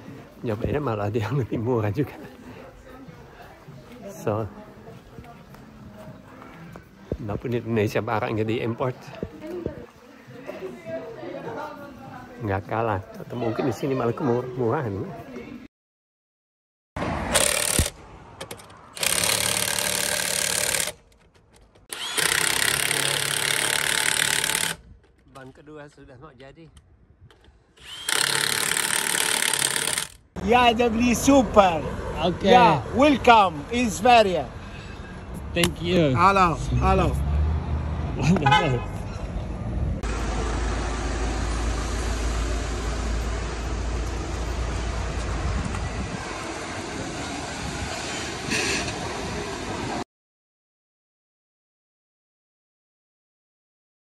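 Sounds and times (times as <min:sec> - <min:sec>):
street traffic: 0:00.0 - 0:15.7, 0:17.0 - 0:50.0
vehicle engine and tyres rumbling: 0:17.0 - 0:22.1, 0:29.6 - 0:50.0
impact wrench hammering lug nuts: 0:17.3 - 0:21.1, 0:21.7 - 0:24.8, 0:28.0 - 0:30.2.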